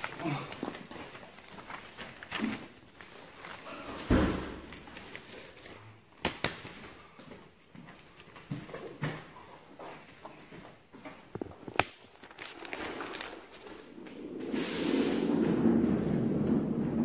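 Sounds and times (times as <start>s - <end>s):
footsteps on hard floor: 6.8s - 11.8s.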